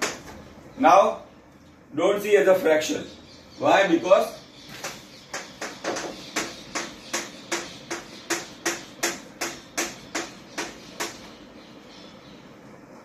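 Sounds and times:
chalk tapping on chalkboard: 5.3s - 11.2s.

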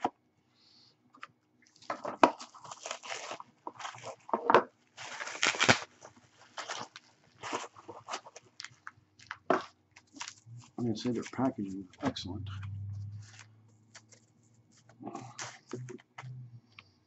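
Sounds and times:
plastic packaging crinkling: 1.6s - 12.2s.

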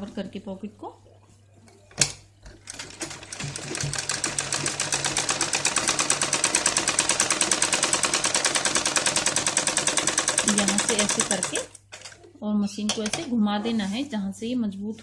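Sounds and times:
sewing machine stitching: 2.6s - 12.2s.

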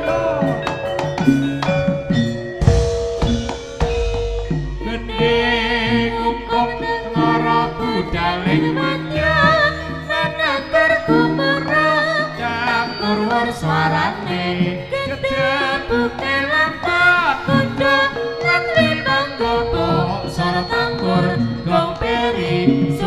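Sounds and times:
gamelan accompaniment: 0.0s - 23.0s
ornamented vocal melody: 0.0s - 23.0s.

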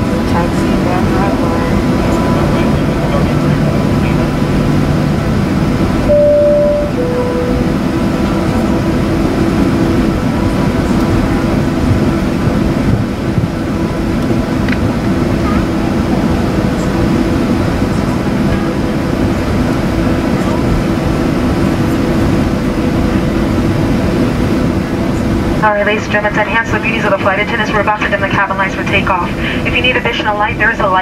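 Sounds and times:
jet cabin engine noise: 0.0s - 31.0s
two-tone cabin chime: 6.1s - 8.1s.

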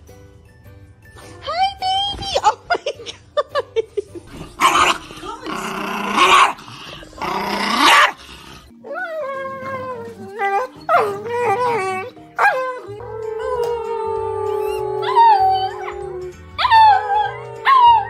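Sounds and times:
dog growling and barking: 4.3s - 18.0s
dog howling: 8.8s - 18.0s.

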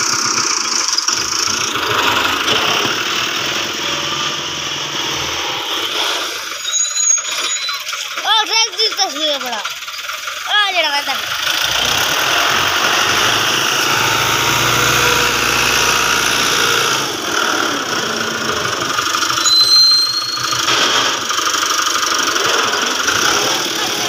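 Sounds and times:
machinery engine running: 0.0s - 24.0s
brief high-pitched whine: 19.4s - 21.2s.

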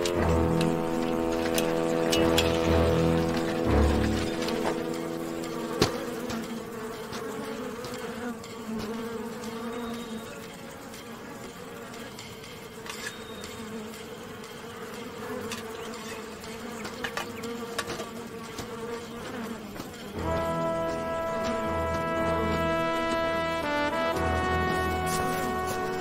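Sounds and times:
swarm of flies buzzing: 0.0s - 26.0s.

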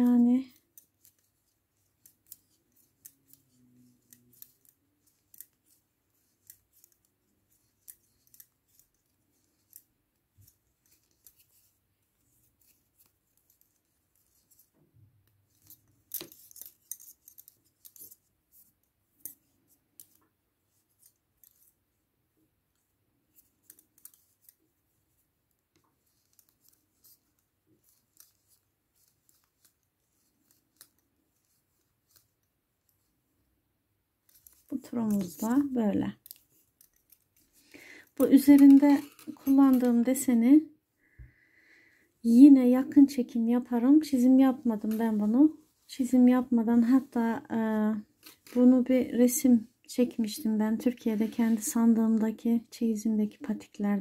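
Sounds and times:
metal knitting needles clicking: 0.5s - 21.8s, 23.3s - 24.6s, 25.5s - 33.0s, 34.2s - 37.6s, 38.2s - 40.1s.

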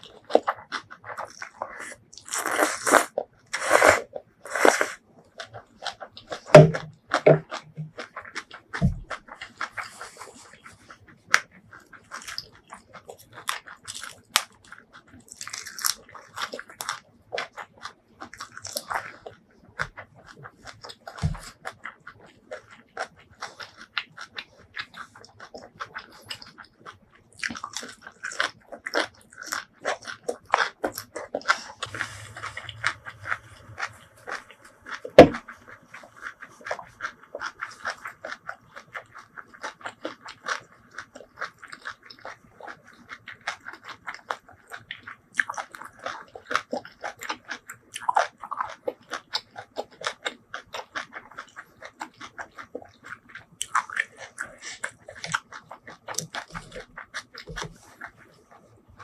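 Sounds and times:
crunchy chewing: 0.0s - 59.0s.

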